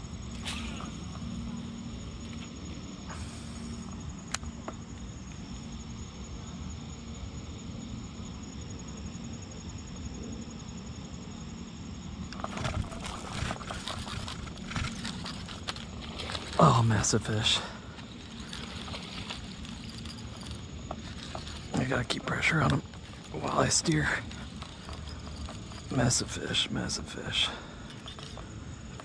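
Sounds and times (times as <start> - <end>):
crickets trilling: 0.0 - 29.0.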